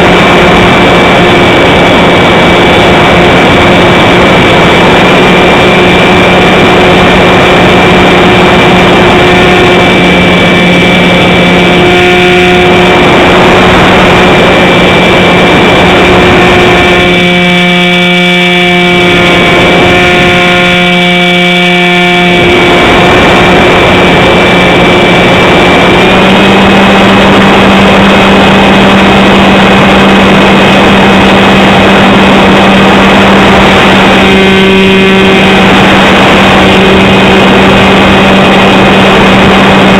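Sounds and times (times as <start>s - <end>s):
model plane motor humming: 0.0s - 39.9s
wind rush: 0.0s - 39.9s.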